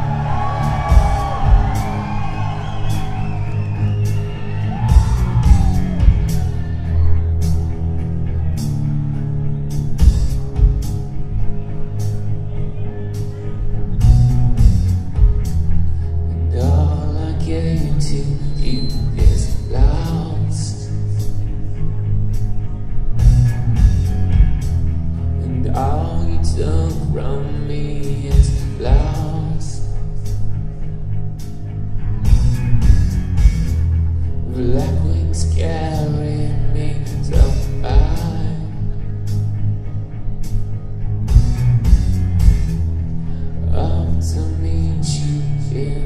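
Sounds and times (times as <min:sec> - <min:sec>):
live rock band playing: 0:00.0 - 0:18.2, 0:19.0 - 0:27.3, 0:28.1 - 0:36.2, 0:36.8 - 0:45.9
person singing: 0:16.3 - 0:21.4, 0:25.4 - 0:30.0, 0:34.4 - 0:39.0, 0:43.6 - 0:46.0.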